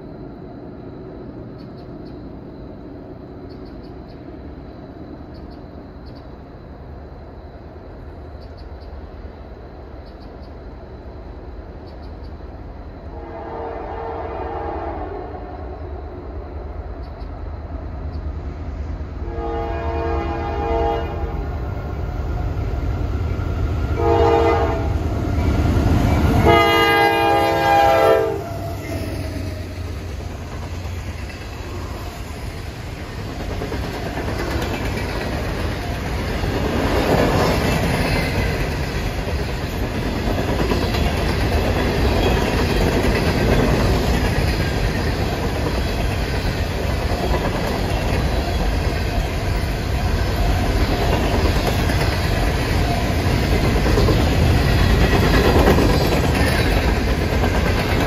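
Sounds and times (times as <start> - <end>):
train rolling rumble: 0.0 - 58.0
locomotive air horn blasts: 13.2 - 15.5, 19.2 - 21.4, 24.0 - 25.0, 26.4 - 28.8.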